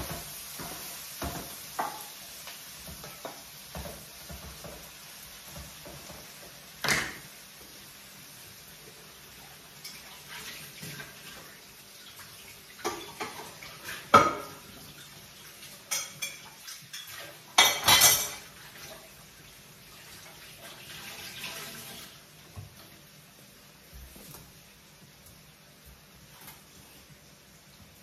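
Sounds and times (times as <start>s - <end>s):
running water: 2.8s - 28.0s
dishes and cutlery clattering: 5.5s - 7.3s, 9.8s - 11.4s, 12.8s - 14.7s, 15.8s - 18.9s.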